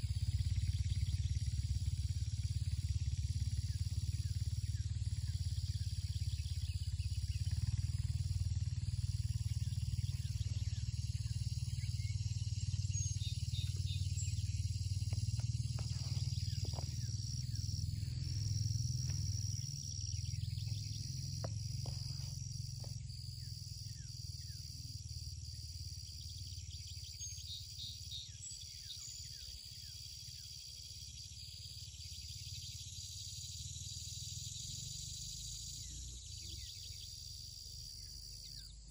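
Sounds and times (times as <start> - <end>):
insects droning: 0.0 - 38.9
birds chirping: 3.5 - 24.7
steady low rumble: 5.0 - 25.2.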